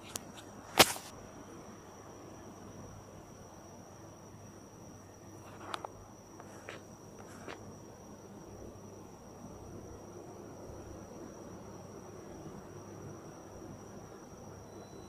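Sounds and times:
cricket trilling: 0.0s - 15.0s.

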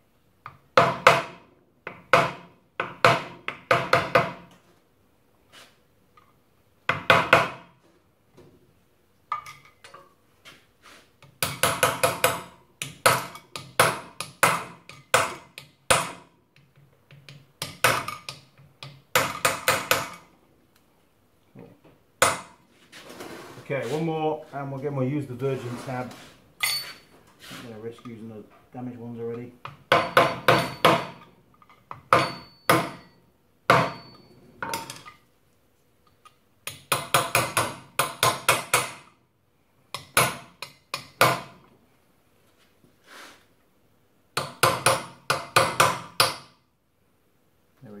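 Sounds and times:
hammer tapping metal punch: 29.6s - 31.3s, 31.9s - 35.1s, 36.7s - 39.1s, 44.4s - 46.5s.

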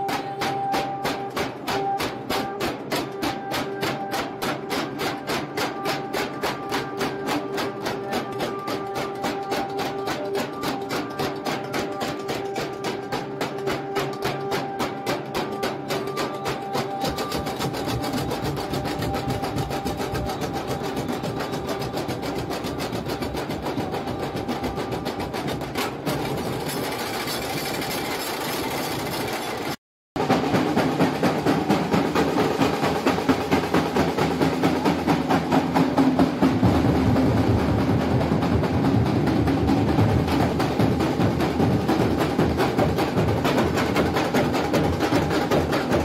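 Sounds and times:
fast percussion drumming: 0.0s - 46.0s.

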